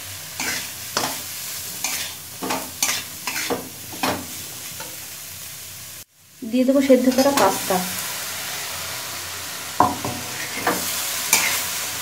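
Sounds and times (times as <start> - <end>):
food sizzling in hot oil: 0.0 - 12.0
metal spatula scraping a pan: 0.4 - 5.0, 9.8 - 11.7.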